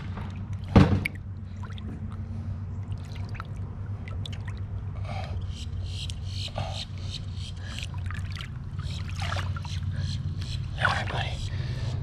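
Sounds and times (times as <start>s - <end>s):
shallow water sloshing: 0.0s - 5.0s, 7.6s - 10.4s
steady low hum: 0.0s - 12.0s
water splash: 8.0s - 9.7s.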